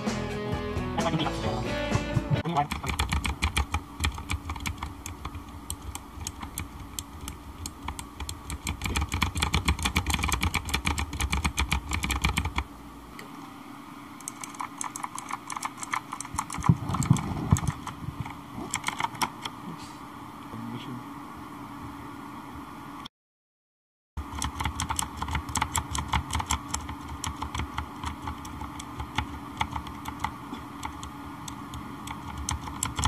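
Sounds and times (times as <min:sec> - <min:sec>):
mechanical keyboard clicking: 0:02.6 - 0:12.6, 0:14.2 - 0:18.0, 0:18.7 - 0:19.5, 0:24.3 - 0:33.0.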